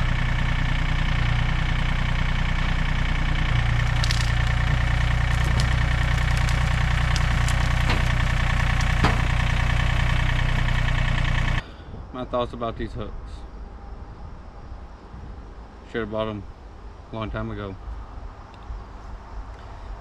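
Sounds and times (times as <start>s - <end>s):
tractor diesel engine running: 0.0s - 11.6s
sharp cracks and clicks: 3.8s - 9.6s.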